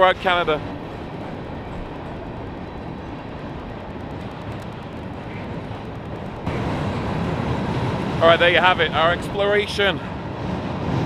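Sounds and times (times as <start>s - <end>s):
train wheels rumbling on bridge: 0.0s - 11.0s.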